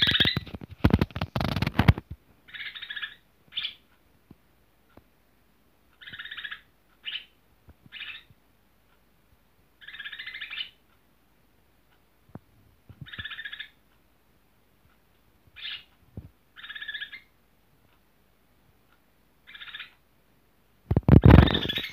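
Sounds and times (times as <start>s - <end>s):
bird chattering song: 0.0s - 0.5s, 2.5s - 3.9s, 6.0s - 8.3s, 9.8s - 10.8s, 13.0s - 13.8s, 15.6s - 15.9s, 16.6s - 17.3s, 19.4s - 20.0s, 21.1s - 21.9s.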